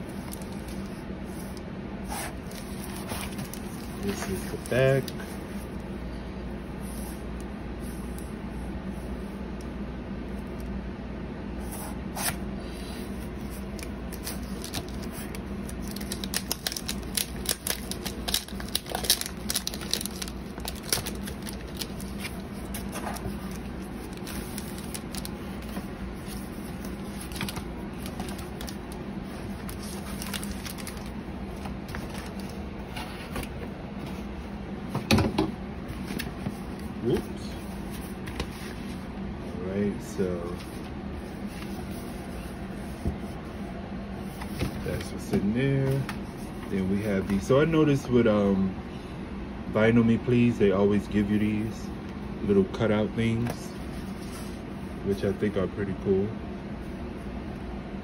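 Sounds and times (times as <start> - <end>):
cardboard and paper rustling: 0.0 - 5.7, 12.2 - 34.3, 35.8 - 39.1, 40.0 - 47.6
steady low hum: 0.0 - 58.0.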